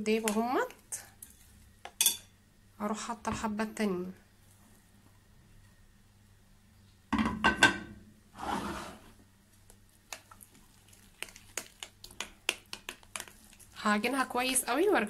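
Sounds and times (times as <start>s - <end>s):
metal spoon clinking on glass bowl: 2.0s - 2.3s.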